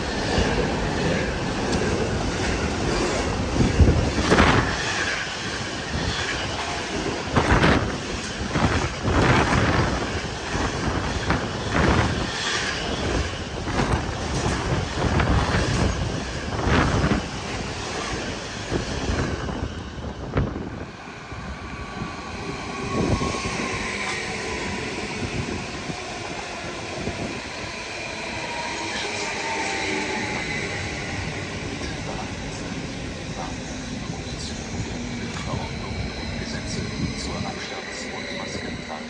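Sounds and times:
electric train whine: 0.0s - 39.0s.

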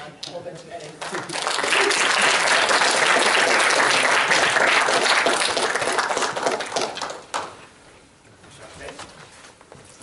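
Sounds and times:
audience applauding: 1.0s - 7.6s.

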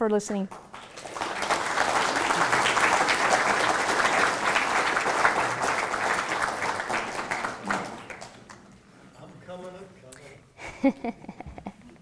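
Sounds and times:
audience applauding: 0.5s - 8.8s.

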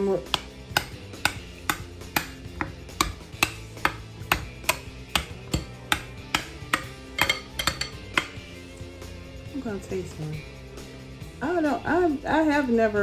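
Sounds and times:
soft background music: 0.0s - 13.0s
metal spoon clinking on glass bowl: 5.9s - 8.4s.

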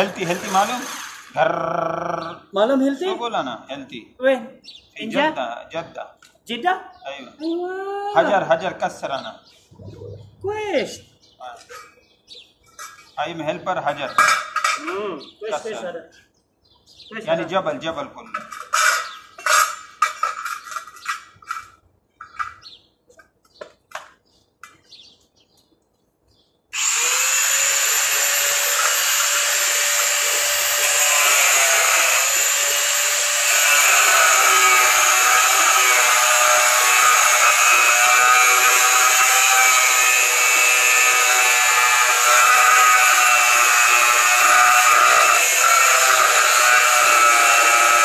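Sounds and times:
angle grinder whining on steel: 0.0s - 1.4s, 26.8s - 48.0s.

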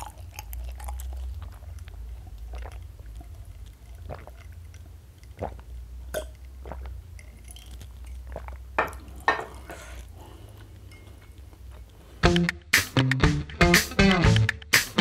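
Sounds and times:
mouth and lip noises: 0.0s - 10.9s
person drinking and swallowing: 0.0s - 11.9s
loud music: 12.2s - 15.0s.

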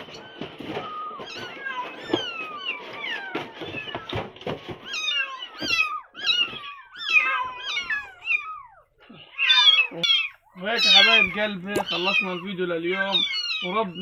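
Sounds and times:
rustling and light knocks: 0.0s - 8.1s
kittens mewing: 0.0s - 14.0s.

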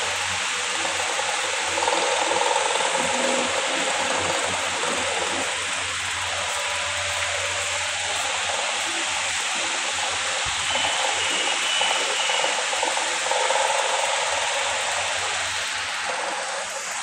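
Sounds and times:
steady rushing hiss: 0.0s - 17.0s.

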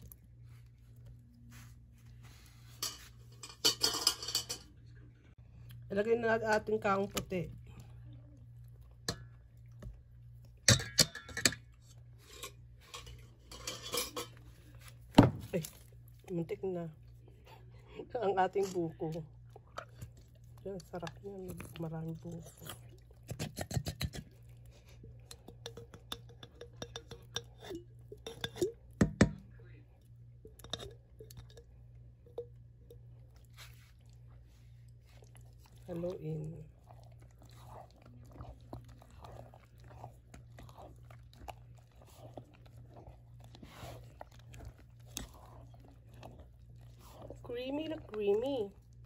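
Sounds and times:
kitchenware clinking on metal bowl: 2.8s - 4.8s, 10.6s - 14.5s, 25.2s - 29.5s, 30.4s - 33.0s.

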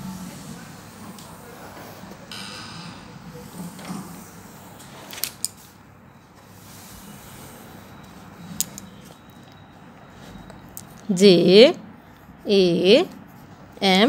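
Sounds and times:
pencil scratching on paper: 12.0s - 14.0s.

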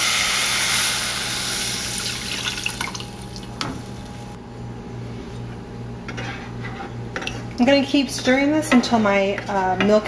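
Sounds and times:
spoon scraping pan: 6.1s - 6.9s.

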